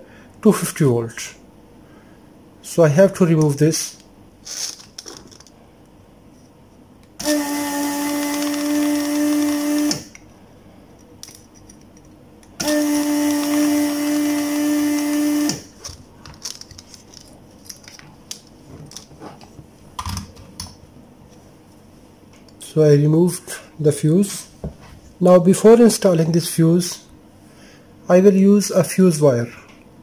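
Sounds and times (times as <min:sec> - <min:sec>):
desoldering suction pump humming: 0:06.8 - 0:20.1.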